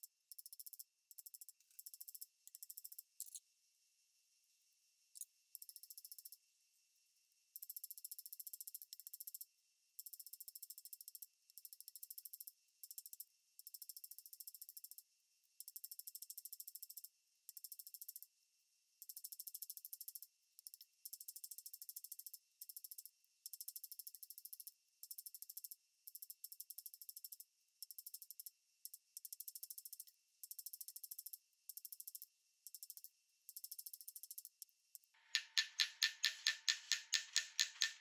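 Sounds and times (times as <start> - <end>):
small hammer tapping on metal: 35.2 - 38.0.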